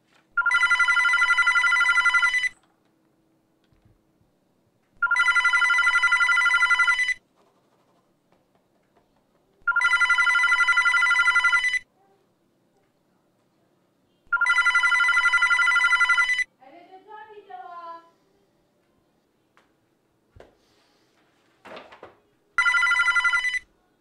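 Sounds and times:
telephone ringing: 0:00.4 - 0:02.6, 0:05.0 - 0:07.2, 0:09.6 - 0:11.9, 0:14.3 - 0:16.5, 0:22.6 - 0:23.7.

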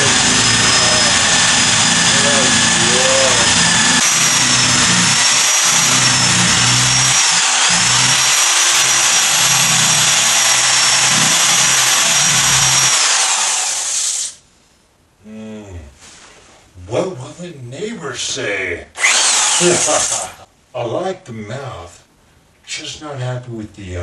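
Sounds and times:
power tool carving pumpkin: 0:00.0 - 0:14.4, 0:19.0 - 0:20.4.

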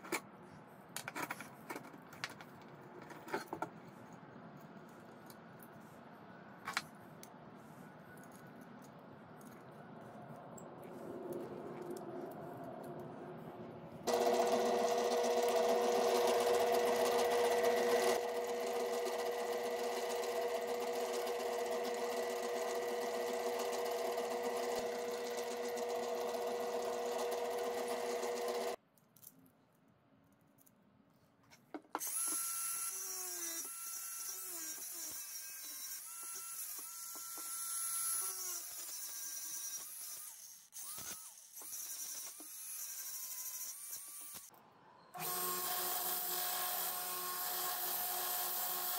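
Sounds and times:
angle grinder whining: 0:14.1 - 0:28.8, 0:32.0 - 0:44.5, 0:45.1 - 0:48.9
drill press drilling steel: 0:14.1 - 0:28.8, 0:45.2 - 0:48.9.

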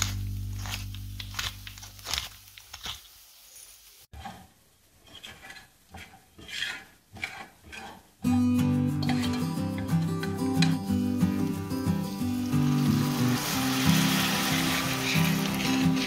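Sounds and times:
utensils scraping a pan: 0:04.1 - 0:08.2, 0:09.0 - 0:10.4, 0:14.5 - 0:16.0
background music: 0:08.3 - 0:16.0.

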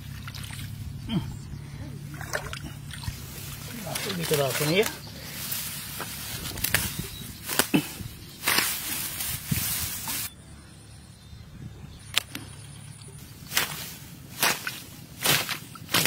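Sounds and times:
leafy plants rustling: 0:00.0 - 0:10.4, 0:12.1 - 0:16.0
stems snapping: 0:02.9 - 0:09.4, 0:12.0 - 0:16.0.

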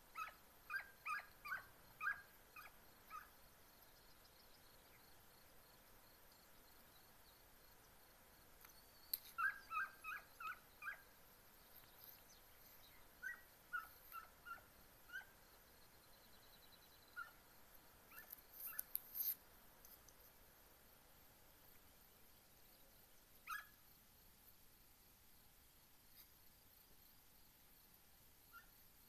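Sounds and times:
hound pups yelping: 0:00.1 - 0:03.4, 0:09.2 - 0:11.1, 0:12.9 - 0:15.4, 0:17.1 - 0:17.4, 0:23.4 - 0:23.8.

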